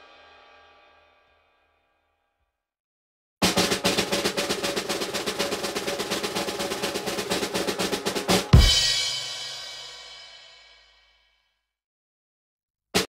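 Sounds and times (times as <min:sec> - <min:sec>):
cymbal crash: 0:00.0 - 0:01.6, 0:08.4 - 0:10.8
snare drum roll: 0:03.4 - 0:10.6
bass drum hit: 0:08.6 - 0:09.3.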